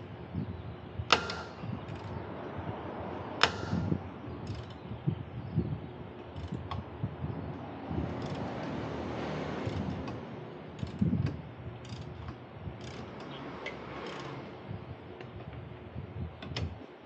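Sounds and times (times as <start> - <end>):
dull knocks of tools: 1.1 - 2.1, 3.4 - 4.8, 9.6 - 14.4.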